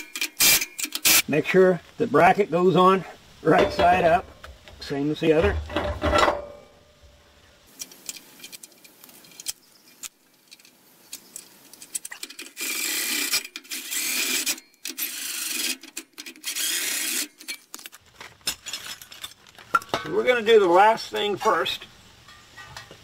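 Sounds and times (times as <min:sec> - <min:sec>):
small metal clicks of bolts: 0:07.7 - 0:20.0.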